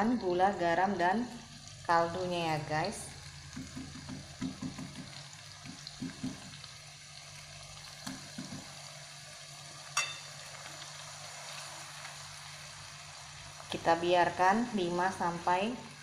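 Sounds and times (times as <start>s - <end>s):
paste sizzling in oil: 1.4s - 16.0s
glass bowl knocking on spatula: 10.0s - 10.3s
sharp clink: 10.0s - 10.3s.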